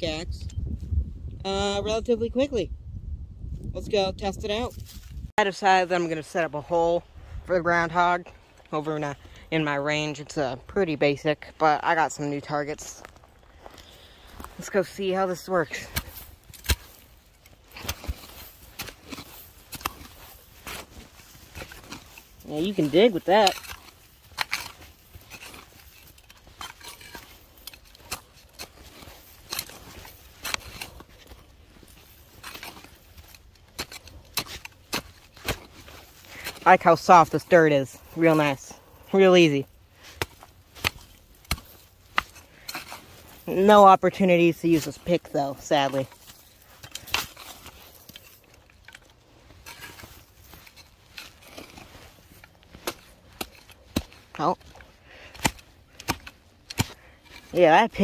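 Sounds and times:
shovel digging into dirt: 14.1s - 58.0s.

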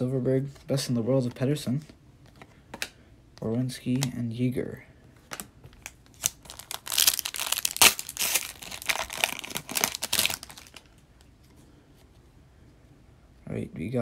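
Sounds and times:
foil wrapper crinkling: 5.8s - 11.0s
foil ripping: 6.2s - 10.9s.

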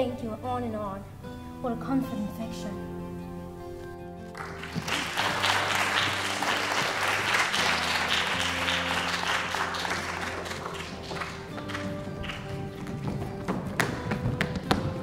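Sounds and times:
soft background music: 0.0s - 15.0s
audience applauding: 4.3s - 14.6s.

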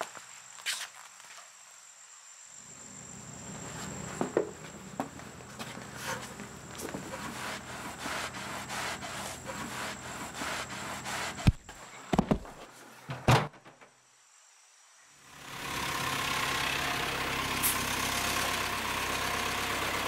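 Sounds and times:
shuffling and rustling: 3.7s - 13.1s.

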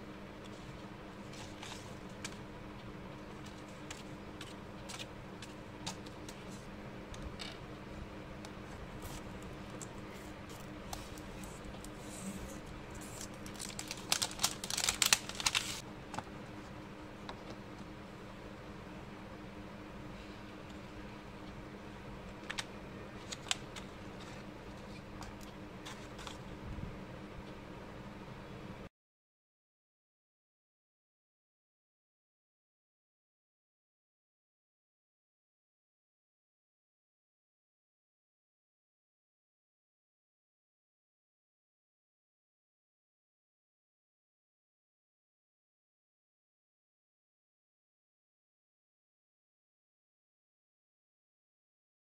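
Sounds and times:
steady low hum: 0.0s - 28.9s
paper rustling: 0.5s - 2.4s, 8.9s - 15.8s, 22.4s - 26.4s.

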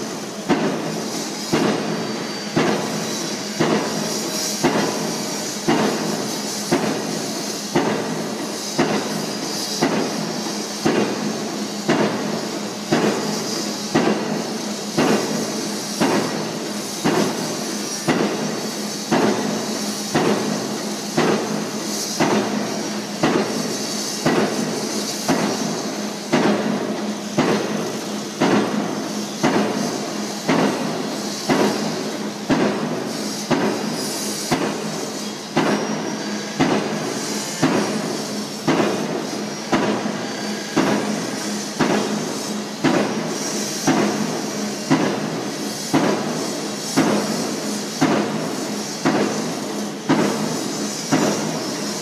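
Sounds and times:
pile driver hammer striking: 7.7s - 8.2s, 33.5s - 33.8s, 36.6s - 37.0s, 38.6s - 40.1s, 41.8s - 42.2s.

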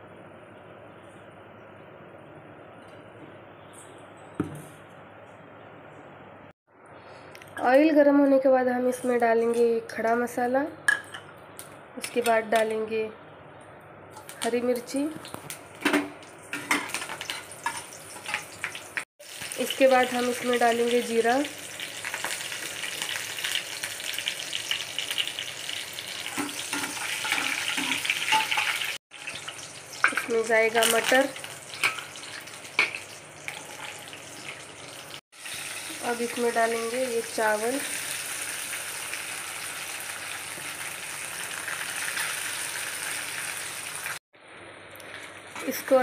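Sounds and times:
spices sizzling in hot oil: 14.2s - 44.2s.

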